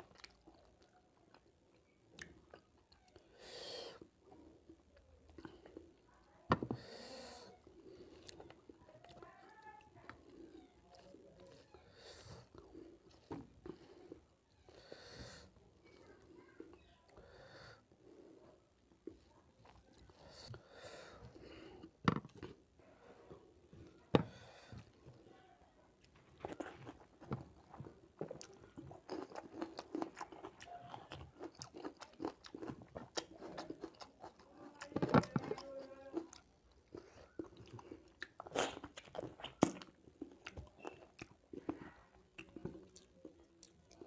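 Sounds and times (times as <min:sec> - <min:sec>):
chewing with wet mouth clicks: 0:00.0 - 0:03.2, 0:26.0 - 0:44.0.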